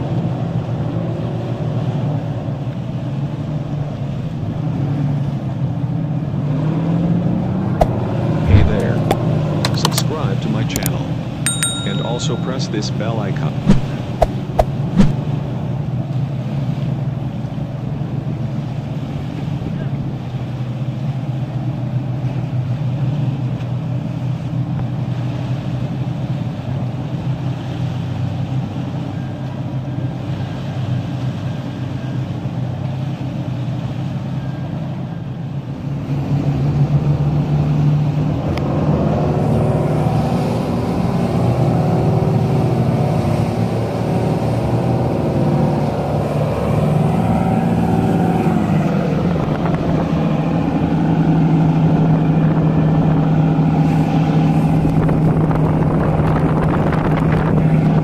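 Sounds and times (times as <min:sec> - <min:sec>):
diesel engines droning: 0:00.0 - 0:58.0
steady tones: 0:11.5 - 0:15.3.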